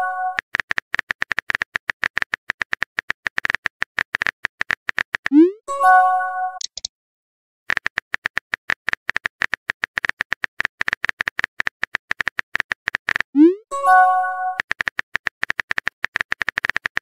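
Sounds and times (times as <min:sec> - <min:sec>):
message chime: 0:13.4 - 0:14.6.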